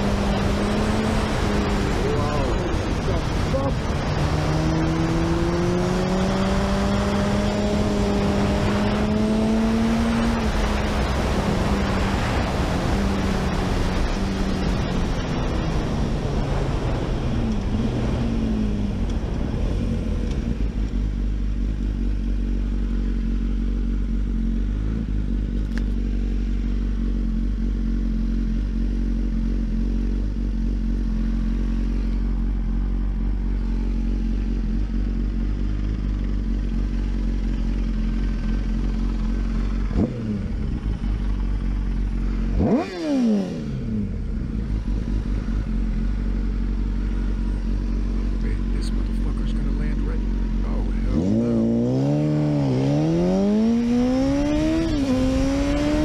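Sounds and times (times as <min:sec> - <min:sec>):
wind rush: 0:00.0 - 0:20.8
motorcycle engine: 0:00.0 - 0:56.0.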